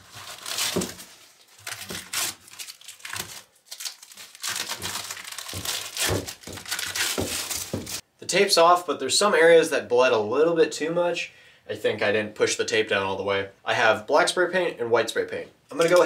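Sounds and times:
masking tape peeling: 0:00.0 - 0:08.0
paper crinkling: 0:00.0 - 0:08.0
tape tearing: 0:00.0 - 0:08.0.

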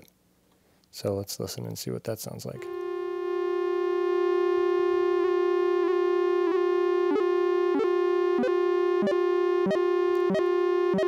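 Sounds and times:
buzzy synthesizer drone: 0:02.6 - 0:11.0
regular synthesizer clicks: 0:07.0 - 0:11.0.

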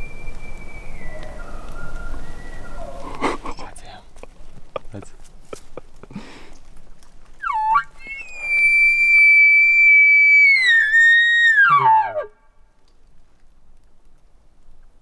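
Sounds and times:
elk call whistle: 0:07.4 - 0:12.4.

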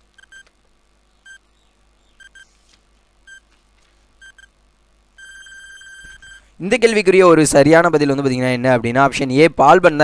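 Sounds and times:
short high beeps: 0:05.2 - 0:06.5.

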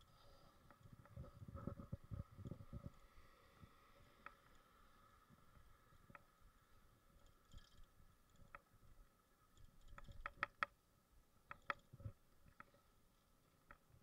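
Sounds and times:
faint steady tone: 0:00.0 - 0:14.0
bicycle clicks and rattles: 0:07.2 - 0:08.7, 0:09.5 - 0:10.8, 0:11.5 - 0:12.8.

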